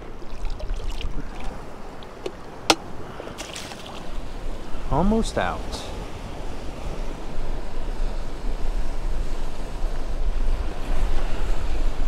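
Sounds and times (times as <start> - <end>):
water lapping: 0.0 - 4.8
wind buffeting microphone: 0.0 - 5.0.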